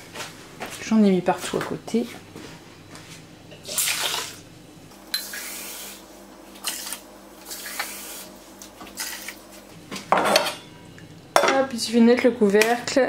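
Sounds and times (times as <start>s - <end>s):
water pouring: 3.6s - 4.4s.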